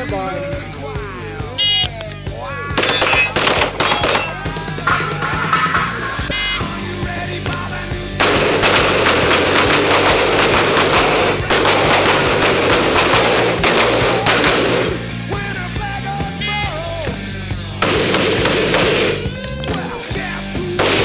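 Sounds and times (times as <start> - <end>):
rock music: 0.0 - 21.0
rapid pistol gunfire: 2.8 - 15.3, 17.8 - 19.4, 20.7 - 21.0.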